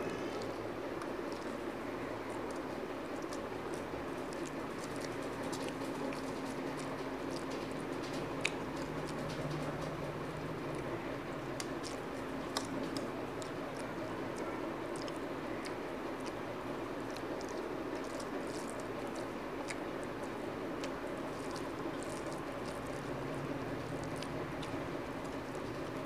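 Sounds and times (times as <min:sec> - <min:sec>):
wet chewing: 0:00.4 - 0:26.0
lip smacks: 0:11.5 - 0:16.4.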